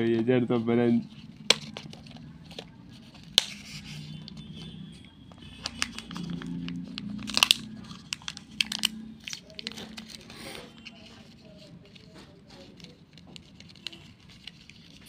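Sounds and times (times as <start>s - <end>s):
plastic and foil crackling: 0.9s - 15.0s
plastic capsule clicks: 1.4s - 2.7s, 5.6s - 10.2s.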